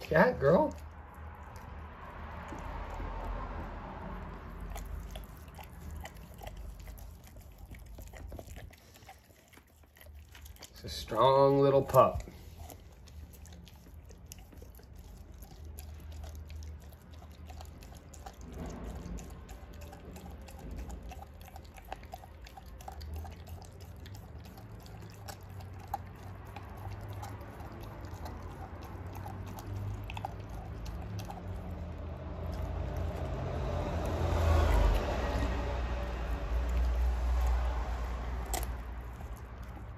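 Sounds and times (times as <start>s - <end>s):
dog licking and chewing: 0.0s - 39.9s
wet mouth clicks and smacks: 11.9s - 35.7s, 36.3s - 39.9s.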